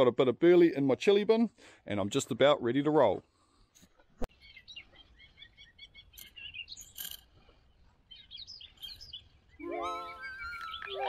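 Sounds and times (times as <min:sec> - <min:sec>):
small birds chirping: 0:03.1 - 0:11.0
background music held notes: 0:09.6 - 0:11.0.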